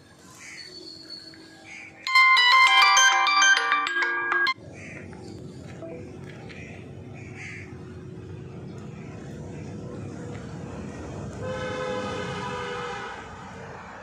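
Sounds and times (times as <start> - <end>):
vehicle horn: 11.4 - 13.3.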